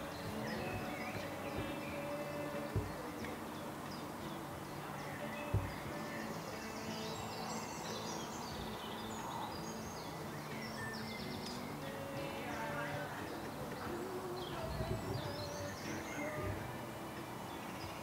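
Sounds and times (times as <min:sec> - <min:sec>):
songbirds chirping and trilling: 0:00.0 - 0:18.0
dull thump: 0:05.5 - 0:05.8.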